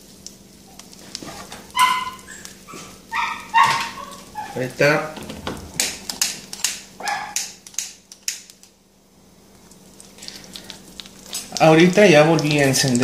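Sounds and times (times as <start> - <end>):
butter sizzling and popping in a wok: 0.0 - 1.7.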